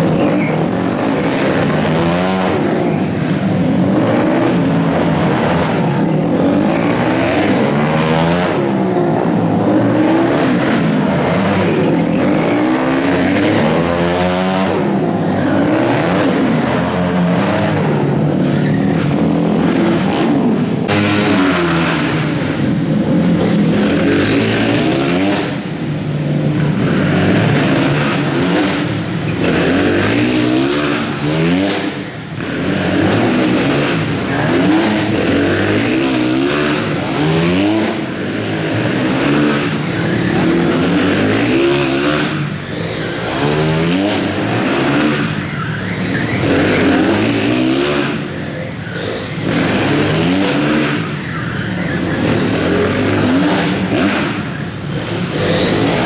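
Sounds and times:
motorcycle engines racing: 0:00.0 - 0:56.0.

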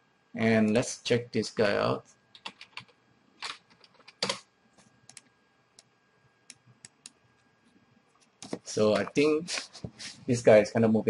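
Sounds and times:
keyboard typing: 0:02.3 - 0:04.4.

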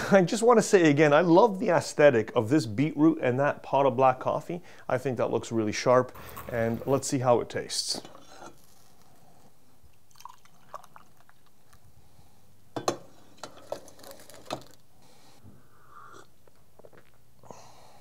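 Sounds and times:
coffee slurping: 0:10.1 - 0:11.5.

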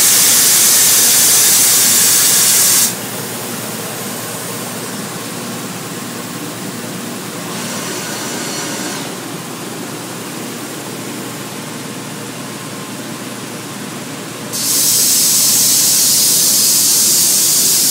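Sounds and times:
hiss: 0:00.0 - 0:03.0, 0:14.6 - 0:17.9
woodworking machine noise: 0:07.2 - 0:10.0.

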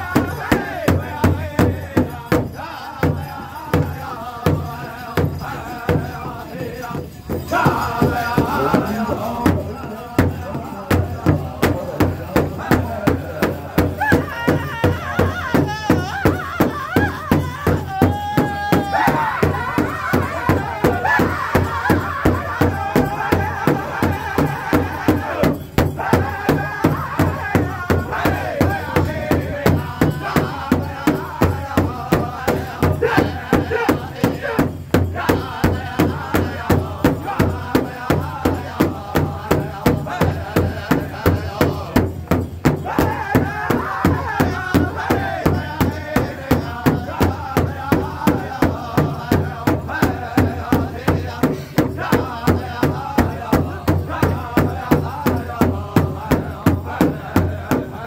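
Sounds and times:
large drum steady beat: 0:00.0 - 0:58.0
men singing: 0:00.0 - 0:58.0.

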